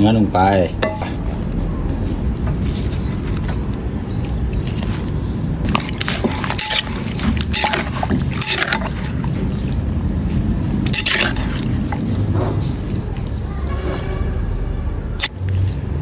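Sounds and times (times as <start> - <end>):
metal spoon scraping: 5.6 - 12.8.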